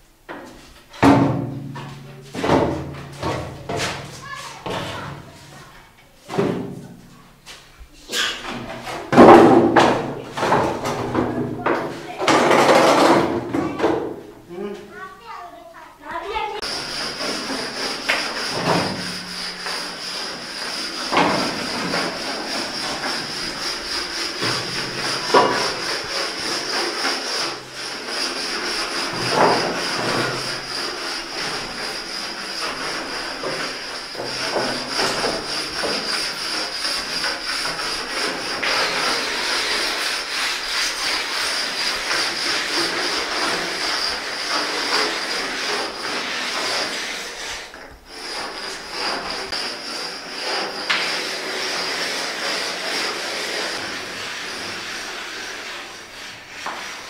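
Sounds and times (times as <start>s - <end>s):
abrasive rubbing on surface: 16.1s - 57.0s.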